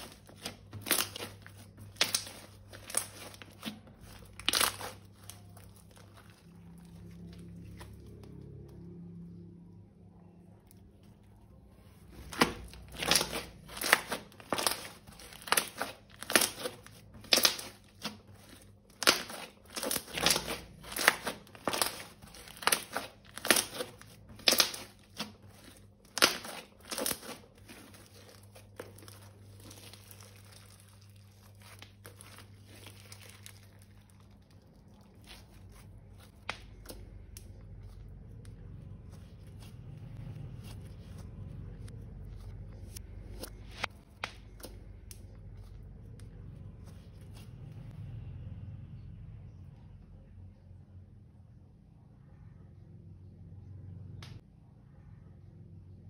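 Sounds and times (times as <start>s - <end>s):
material crinkling and crackling: 0.0s - 9.0s, 10.6s - 48.0s.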